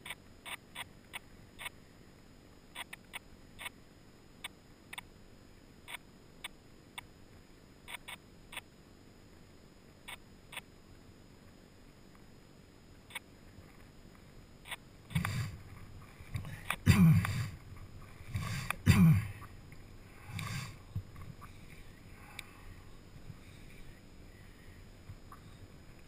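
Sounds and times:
small clicks: 0.0 - 1.8, 2.7 - 3.8, 4.4 - 5.1, 7.8 - 8.7.

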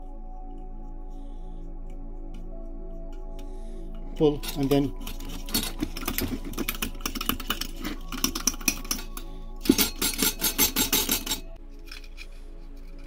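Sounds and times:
hand pump clicking: 4.2 - 11.4.

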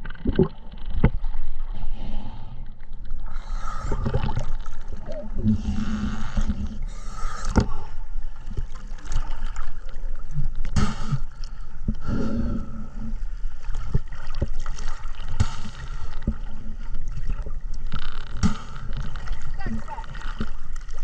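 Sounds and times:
exhaled bubbles gurgling: 3.1 - 21.0.

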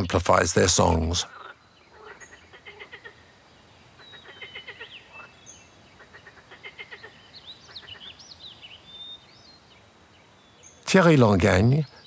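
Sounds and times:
tree frogs calling in pulsed trains: 0.0 - 12.0
birds chirping high whistles: 7.0 - 10.9.

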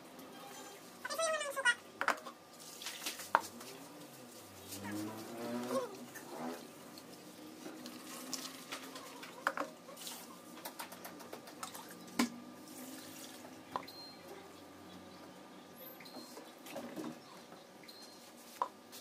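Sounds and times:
water swishing in bowl: 2.5 - 10.5, 11.6 - 14.1.

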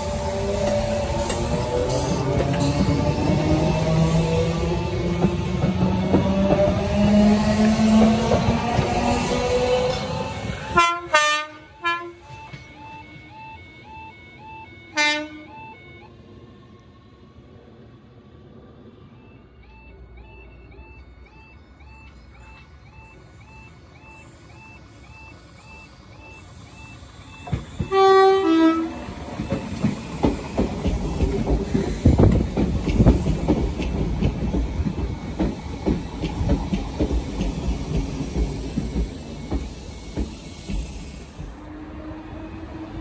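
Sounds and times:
train wheels clattering over rails: 0.0 - 10.7, 27.3 - 41.6
level crossing alarm warbling: 8.5 - 16.2, 19.2 - 30.6
two-tone train horn: 10.2 - 12.4, 14.9 - 15.6, 27.8 - 29.2.

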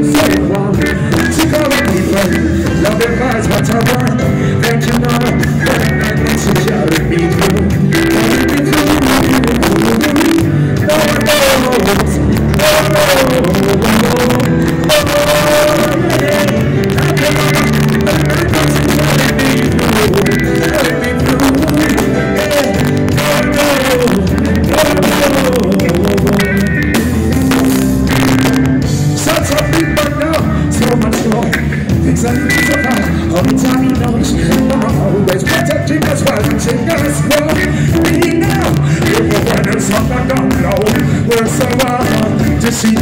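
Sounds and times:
man singing through a pa: 0.0 - 26.9, 29.2 - 43.0
live reggae band playing: 0.0 - 43.0.

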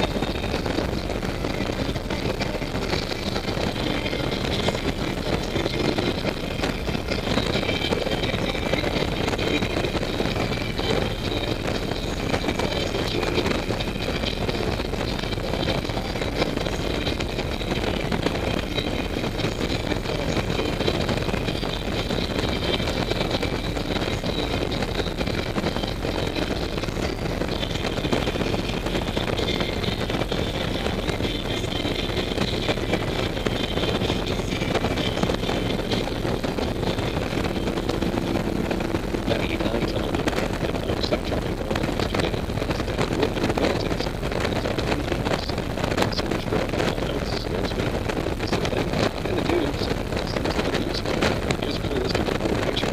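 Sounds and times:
motorcycle engine cruising: 0.0 - 46.7
wind and road noise: 0.0 - 52.9.

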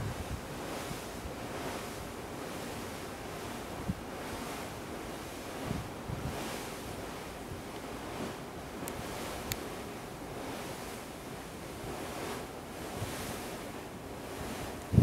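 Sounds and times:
wind buffeting microphone: 0.0 - 2.0, 5.5 - 7.2, 11.8 - 15.0
wind and sea water rushing: 0.0 - 15.0.

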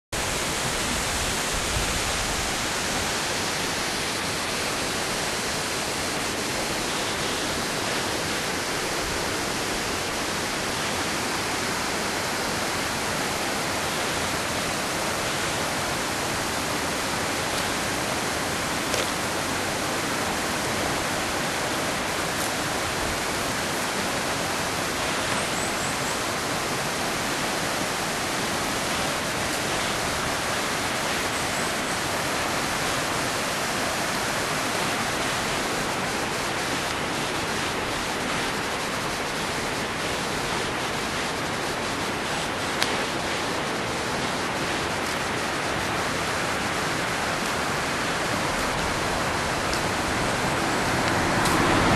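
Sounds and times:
waterfall rushing: 0.2 - 51.9.

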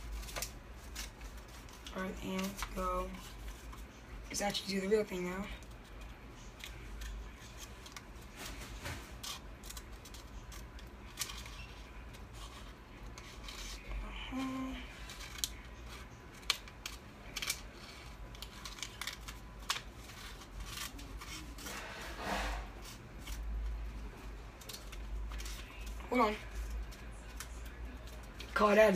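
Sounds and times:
scissors cutting paper: 8.8 - 28.9.

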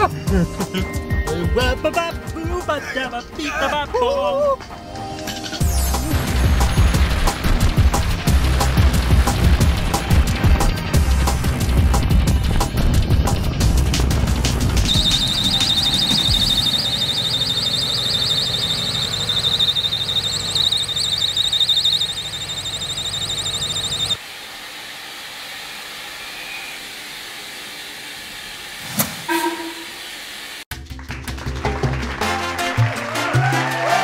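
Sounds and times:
car engine running: 5.6 - 24.2
fan belt squealing: 10.3 - 30.4.

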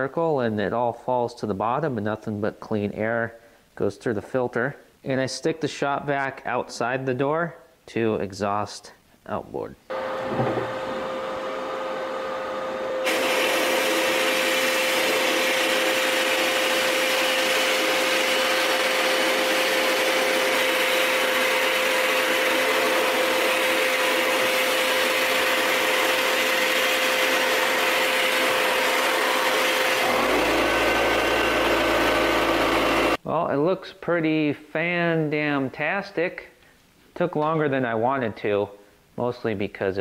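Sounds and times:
shop vacuum whining: 9.9 - 33.2.

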